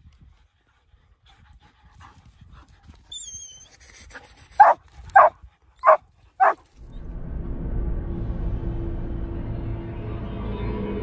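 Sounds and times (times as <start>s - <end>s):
dog panting: 4.1s - 6.6s
dog barking: 4.6s - 6.6s
dog whining: 4.6s - 6.6s.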